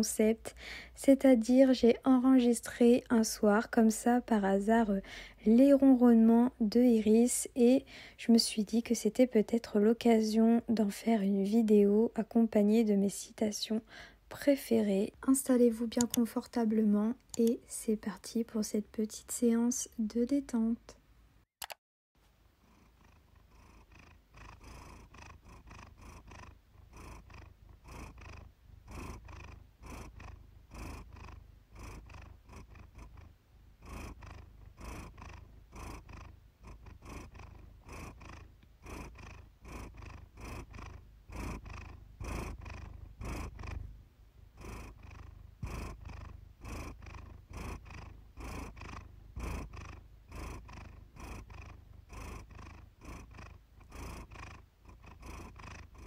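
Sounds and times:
cat purring: 0.0s - 21.0s, 22.5s - 56.0s.

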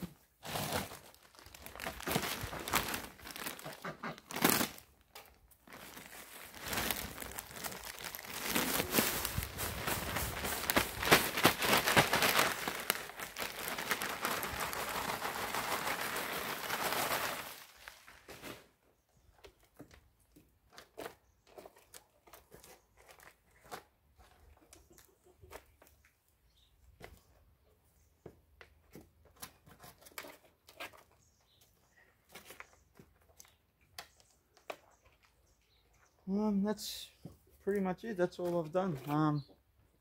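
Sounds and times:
potting soil pouring: 0.3s - 4.8s, 5.6s - 18.8s
plastic bag crinkling: 0.4s - 18.5s.

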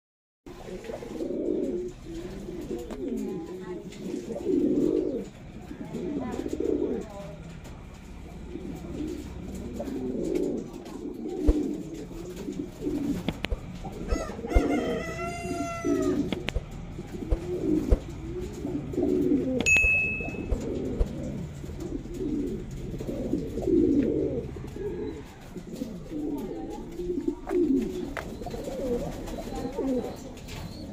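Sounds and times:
pigeons cooing: 0.5s - 30.9s
sharp taps: 13.2s - 13.7s.

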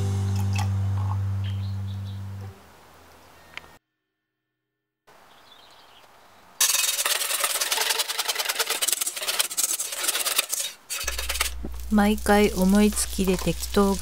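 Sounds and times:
wire whisk scraping metal bowl: 6.6s - 14.0s.

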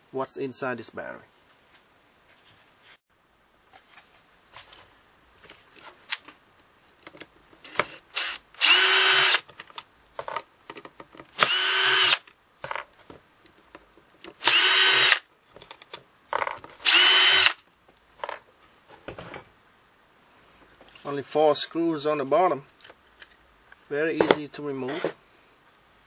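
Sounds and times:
drill motor running: 8.2s - 9.4s, 11.4s - 12.2s, 14.4s - 15.2s, 16.8s - 17.6s.

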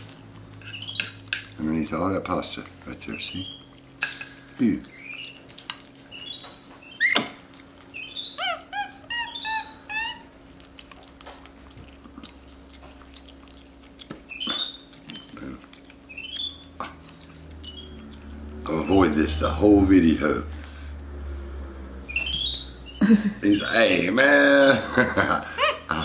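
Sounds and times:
monkey eating clicks and smacks: 0.0s - 18.6s
monkey chirping and squeaking: 0.6s - 1.5s, 3.1s - 3.8s, 4.9s - 10.6s, 14.2s - 15.4s, 16.0s - 18.2s, 22.1s - 24.0s, 24.6s - 26.0s.

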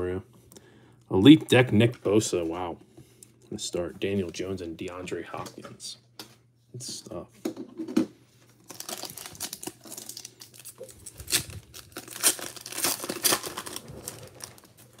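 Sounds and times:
foil wrapper tearing and crinkling: 8.6s - 15.0s.

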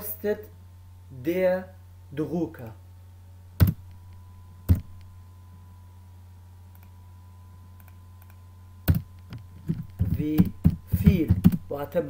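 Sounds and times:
low electrical hum: 0.0s - 12.0s
computer clicks: 6.7s - 7.0s, 7.8s - 11.7s.

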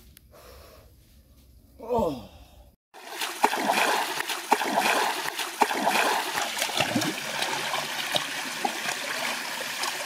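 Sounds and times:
stream running over rocks: 3.0s - 10.0s
water splashes: 3.0s - 10.0s.

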